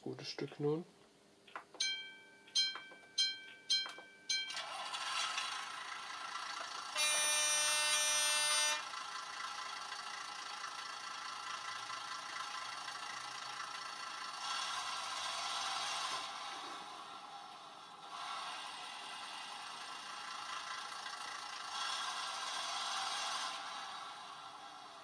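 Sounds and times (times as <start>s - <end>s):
bell-like rings: 1.8s - 4.7s
engine running: 4.5s - 25.0s
horn sounding: 6.9s - 9.0s.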